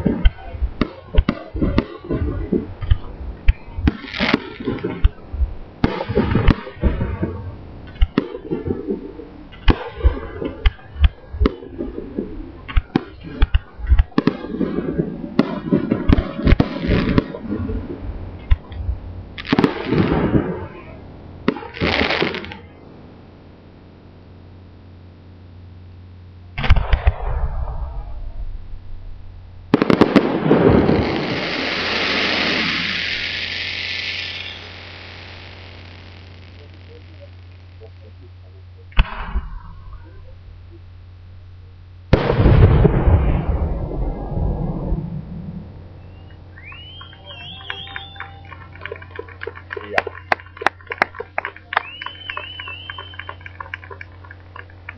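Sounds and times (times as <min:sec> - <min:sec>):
fireworks hiss: 0:00.0 - 0:11.9, 0:12.7 - 0:22.7, 0:29.7 - 0:38.0
fireworks bursting with sharp bangs: 0:00.0 - 0:23.3, 0:26.6 - 0:28.7, 0:29.6 - 0:40.3, 0:42.1 - 0:49.4, 0:50.3 - 0:54.9.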